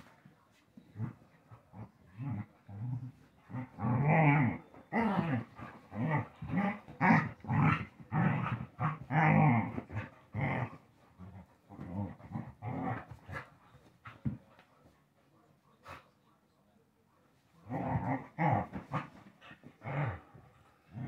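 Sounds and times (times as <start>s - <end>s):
dogs growling: 0.9s - 13.6s, 17.6s - 21.0s.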